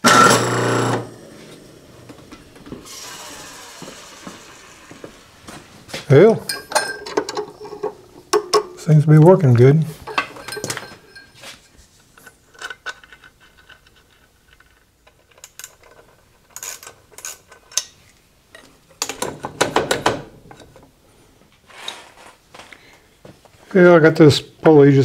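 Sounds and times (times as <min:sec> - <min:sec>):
metal tools clinking: 0:06.2 - 0:08.9, 0:10.0 - 0:11.6.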